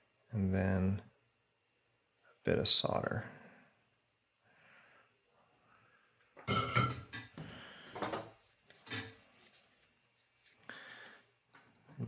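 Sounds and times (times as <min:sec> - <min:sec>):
tools clattering on workbench: 0:06.4 - 0:07.3.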